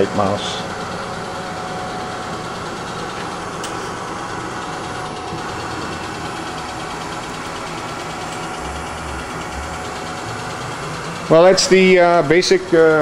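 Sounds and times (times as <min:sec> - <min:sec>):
machine whining tones: 0:00.0 - 0:13.0
milling machine hum: 0:00.0 - 0:13.0.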